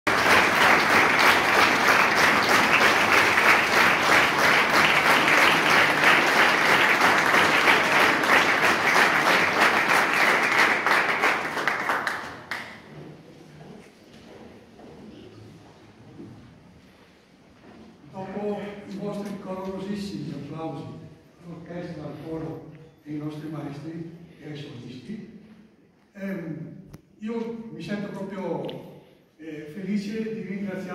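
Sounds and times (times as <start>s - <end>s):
audience applauding: 0.0s - 12.9s.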